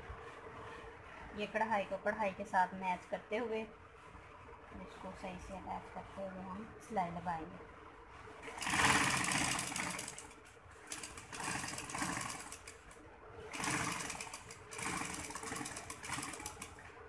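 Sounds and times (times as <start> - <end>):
sewing machine stitching: 8.4 - 16.8.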